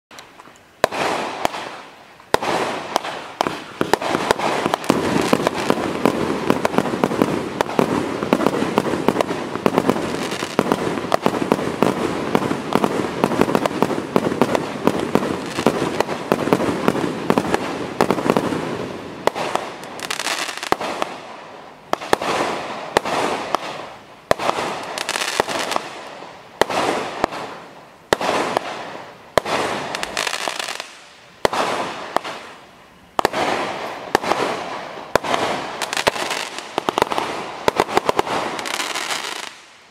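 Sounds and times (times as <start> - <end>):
fireworks shots bursting: 0.1 - 32.6, 33.2 - 39.9
fireworks crackling: 0.1 - 39.9.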